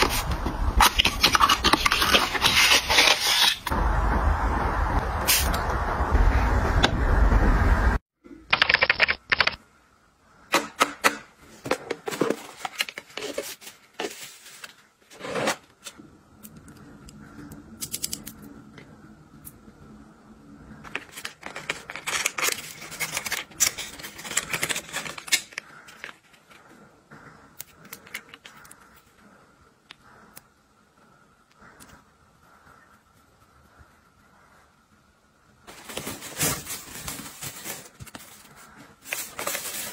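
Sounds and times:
rush of noise: 0:03.7 - 0:08.0.

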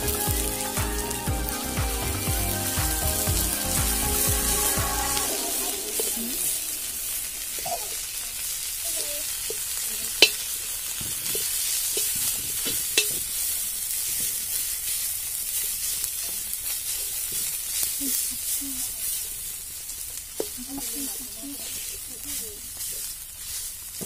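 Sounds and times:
fish sizzling in oil: 0:00.0 - 0:24.0
utensil clinking on wok: 0:11.9 - 0:13.3.

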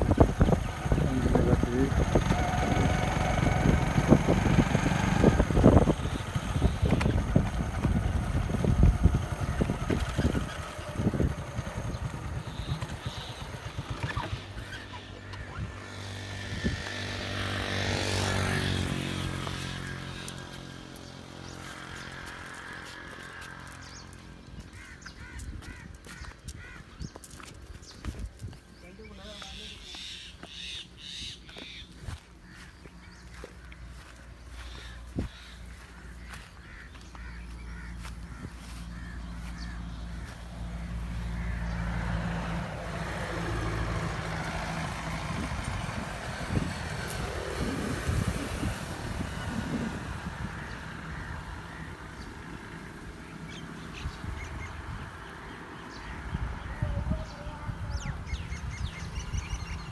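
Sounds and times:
passing vehicle engine hum: 0:00.0 - 0:25.8, 0:28.6 - 0:59.9
bird short calls: 0:29.0 - 0:33.4
tall grass rustling: 0:31.6 - 0:41.5.

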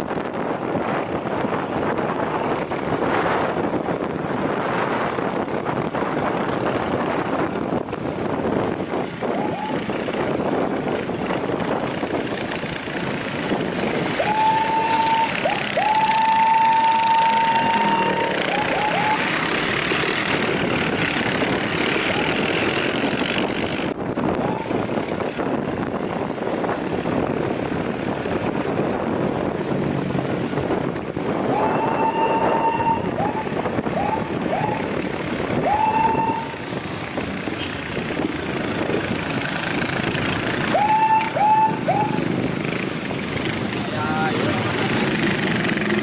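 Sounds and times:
motorcycle engines and wind: 0:00.0 - 0:46.0
police siren blips: 0:14.2 - 0:19.3.

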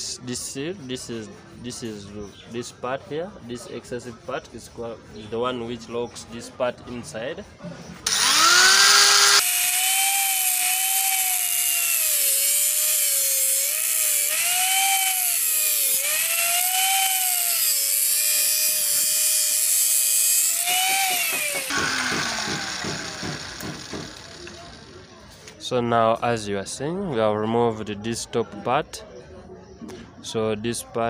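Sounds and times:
angle grinder whining: 0:08.0 - 0:25.1
grinder disc grinding steel: 0:08.1 - 0:25.2.

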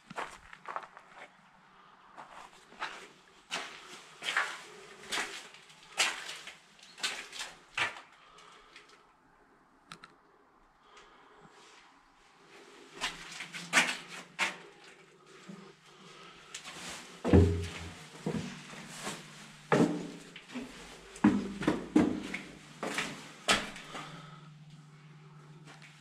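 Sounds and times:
footsteps on wood and concrete: 0:16.6 - 0:24.1.

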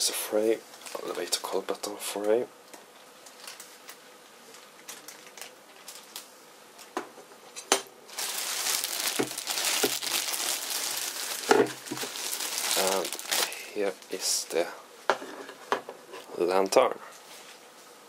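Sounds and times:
plastic bag crinkling: 0:08.1 - 0:14.2.

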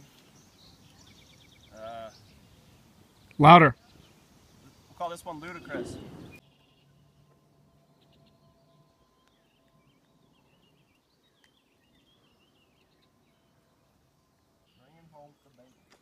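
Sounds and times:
distant birds chirping: 0:00.0 - 0:16.0.

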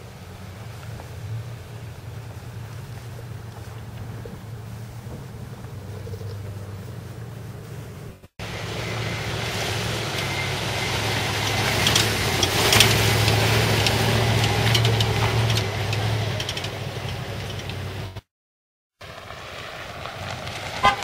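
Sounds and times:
truck engine running: 0:00.0 - 0:18.3, 0:19.0 - 0:21.0
knocks and rattles: 0:11.4 - 0:18.2.

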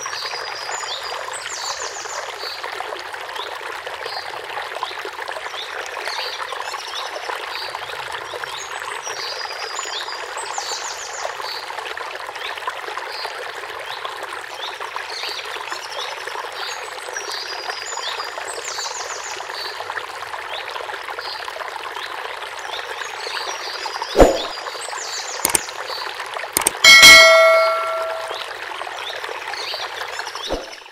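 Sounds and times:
running water: 0:00.0 - 0:30.9
bird chirps and trills: 0:26.6 - 0:28.4, 0:30.4 - 0:30.9
soft click: 0:26.6 - 0:28.4.

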